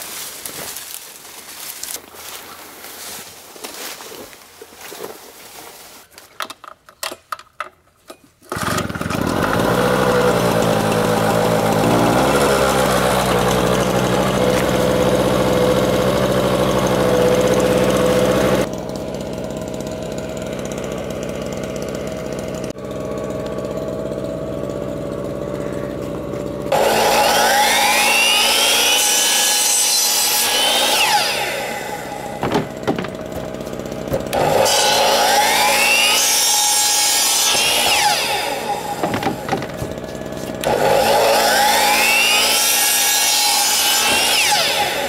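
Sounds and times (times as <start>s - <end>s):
generator pull starter: 6.3s - 45.0s
generator engine running: 8.5s - 29.0s, 30.6s - 42.9s
electric saw motor whine: 8.5s - 45.0s.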